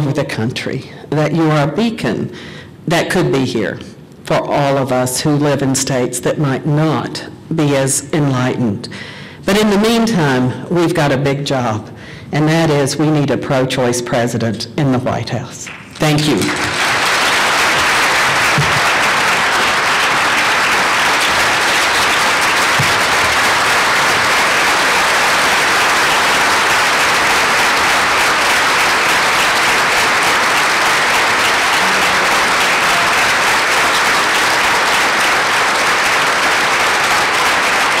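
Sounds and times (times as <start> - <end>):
crowd applauding: 15.7 - 38.0.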